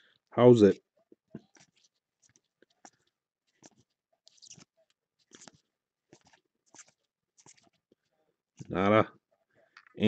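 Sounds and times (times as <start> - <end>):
trading cards sliding and scraping: 1.4 - 8.7.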